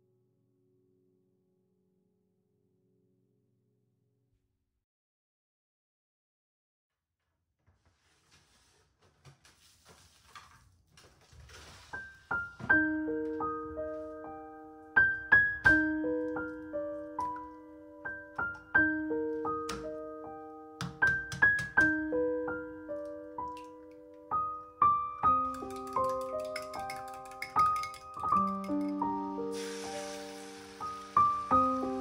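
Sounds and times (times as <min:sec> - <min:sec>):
faint rustling: 0:07.6 - 0:12.8
gentle piano melody: 0:12.0 - 0:32.0.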